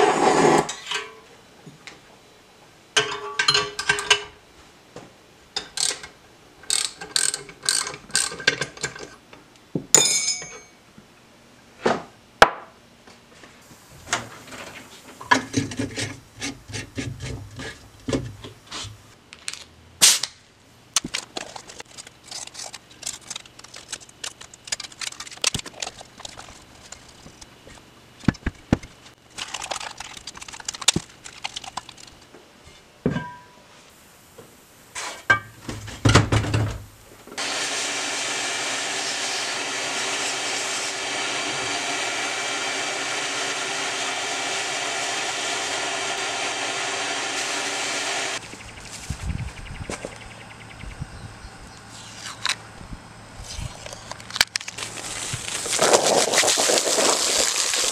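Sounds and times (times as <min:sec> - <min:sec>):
metal tools clinking: 0:10.0 - 0:10.8.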